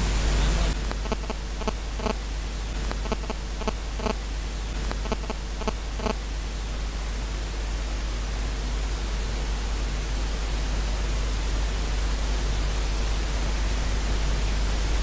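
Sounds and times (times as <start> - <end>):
radio static hiss: 0.0 - 6.8
radio station audio: 0.8 - 2.2, 2.8 - 4.2, 4.8 - 6.2
sharp radio clicks: 0.8 - 2.2, 2.8 - 4.2, 4.8 - 6.2.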